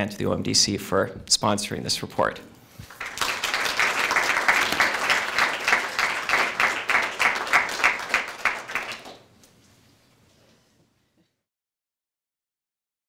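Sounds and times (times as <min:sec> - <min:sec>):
audience applauding: 0:02.9 - 0:09.3.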